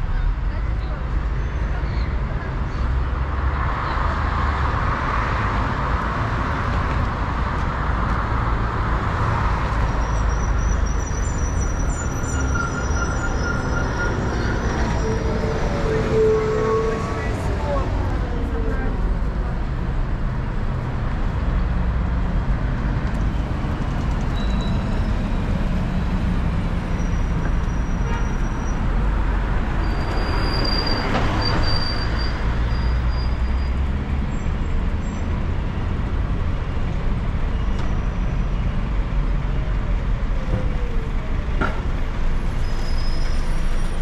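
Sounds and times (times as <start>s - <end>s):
traffic rumble: 0.0s - 44.0s
minibus passing: 2.8s - 44.0s
high squeal: 9.8s - 17.5s, 24.2s - 25.6s, 26.9s - 28.9s, 29.7s - 33.8s, 42.4s - 44.0s.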